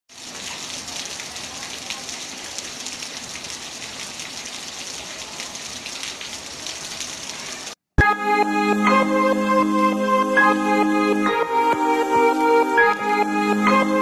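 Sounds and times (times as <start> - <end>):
steady rain falling: 0.1 - 7.8.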